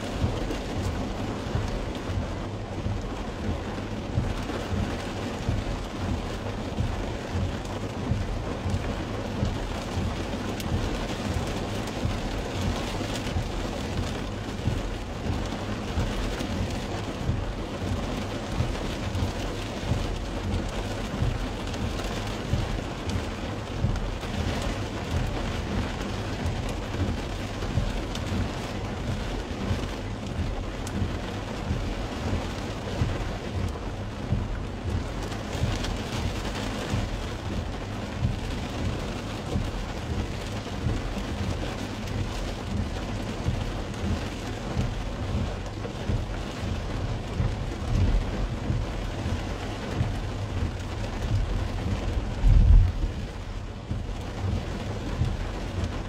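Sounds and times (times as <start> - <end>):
rain on car roof: 0.0 - 56.0
low rumble: 46.0 - 56.0.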